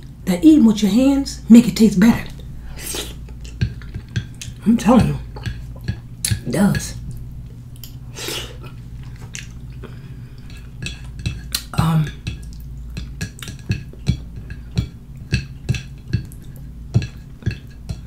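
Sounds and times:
fingernails clicking on a plate: 10.4s - 18.0s.

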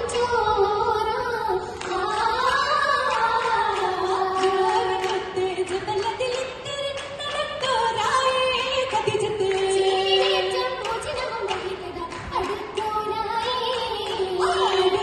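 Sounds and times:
girls singing folk song together: 0.0s - 15.0s
rhythmic hand claps: 0.0s - 15.0s.

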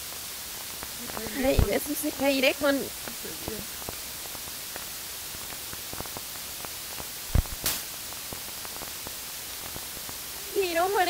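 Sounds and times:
recording hiss: 0.0s - 11.0s
sharp low thump: 7.3s - 7.8s.

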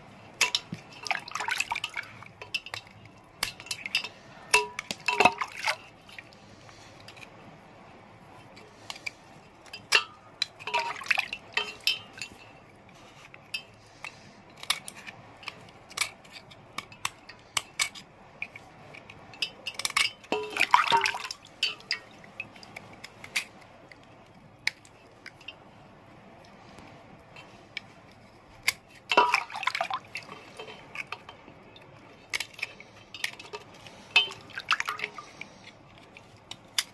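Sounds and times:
water dripping: 0.3s - 6.2s, 9.6s - 12.5s, 19.3s - 22.7s, 29.1s - 35.5s
water splashing: 0.4s - 6.9s, 10.6s - 12.3s, 20.3s - 22.7s, 29.0s - 35.7s.

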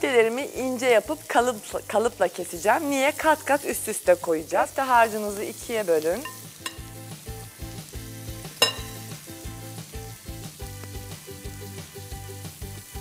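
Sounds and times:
onions sizzling in pan: 0.0s - 13.0s
background music with beat: 6.3s - 13.0s
sharp clink: 8.6s - 9.0s.

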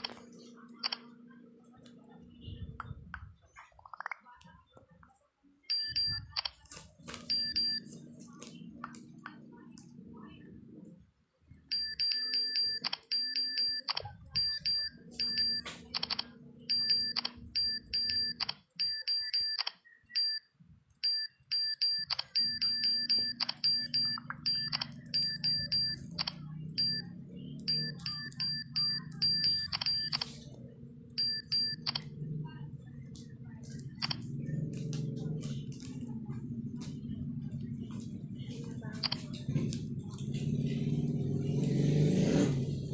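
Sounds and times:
keypress beeps: 0.0s - 1.2s, 5.6s - 7.9s, 11.7s - 32.3s, 33.1s - 34.4s, 39.0s - 39.5s
low steady hum: 0.0s - 41.7s.

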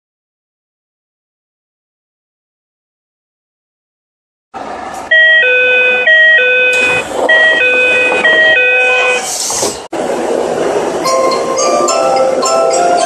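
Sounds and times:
brief rushing hiss: 9.2s - 9.9s.

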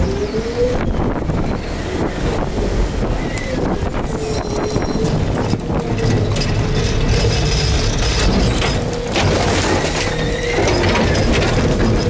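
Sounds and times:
wind rumbling on microphone: 0.0s - 12.0s
trash crushing and crackling: 4.6s - 12.0s.

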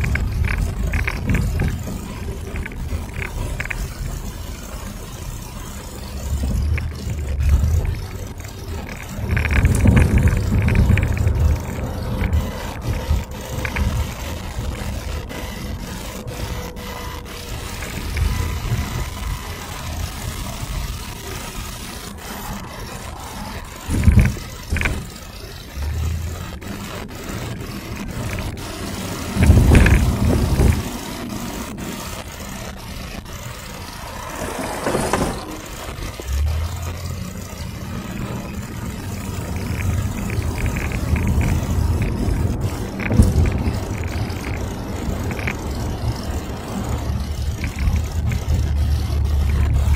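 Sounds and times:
car road and engine noise: 0.0s - 49.9s.

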